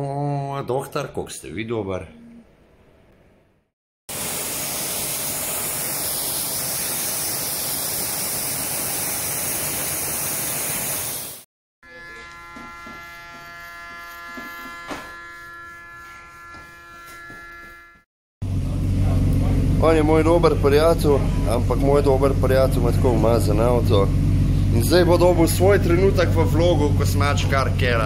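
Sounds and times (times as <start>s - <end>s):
water jet spraying hiss: 4.1s - 11.5s
electric hair clipper buzzing: 11.8s - 18.1s.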